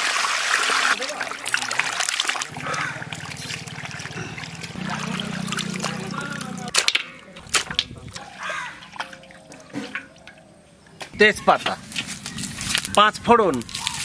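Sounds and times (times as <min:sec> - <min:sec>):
water sloshing and splashing: 0:00.0 - 0:11.0
low buzzing hum: 0:02.4 - 0:06.7.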